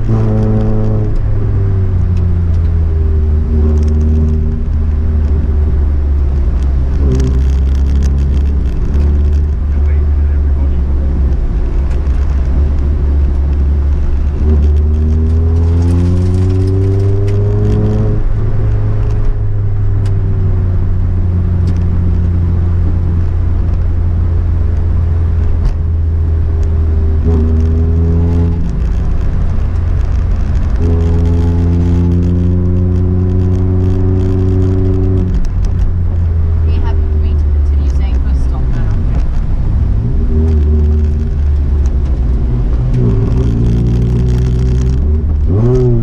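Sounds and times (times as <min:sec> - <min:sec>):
rally car engine revving: 0:00.0 - 0:46.0
road and tyre rumble: 0:00.0 - 0:46.0.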